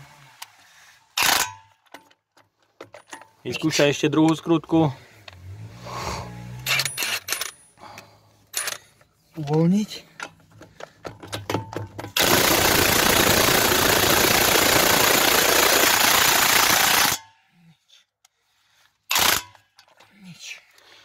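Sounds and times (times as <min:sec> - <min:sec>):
cordless impact wrench hammering: 0:19.1 - 0:19.6.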